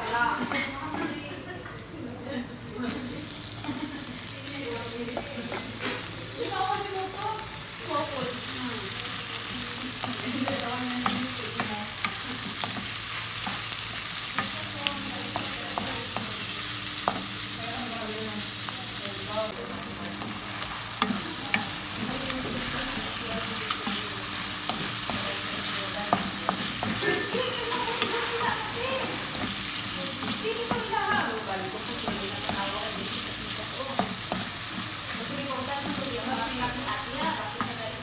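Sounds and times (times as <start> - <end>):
chicken sizzling in hot oil: 2.6 - 38.0
spatula scraping and tapping pan: 10.0 - 17.4, 22.5 - 37.8.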